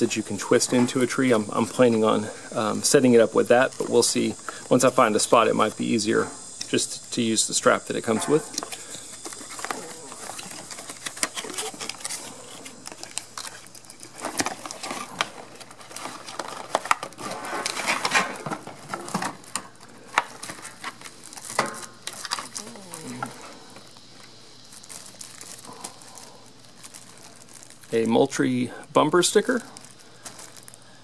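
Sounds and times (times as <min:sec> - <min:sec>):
plastic and cardboard crinkling: 0:00.0 - 0:28.5, 0:29.1 - 0:31.0
sharp crackles: 0:07.9 - 0:28.6, 0:29.2 - 0:31.0.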